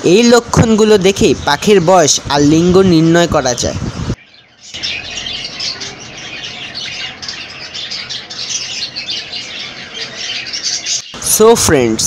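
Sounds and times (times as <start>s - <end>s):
budgerigars chattering: 4.2s - 11.6s.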